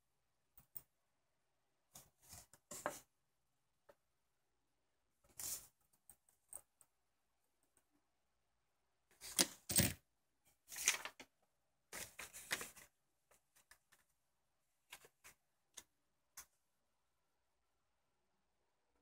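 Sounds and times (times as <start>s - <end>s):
handling rustling and scraping: 1.9s - 3.1s.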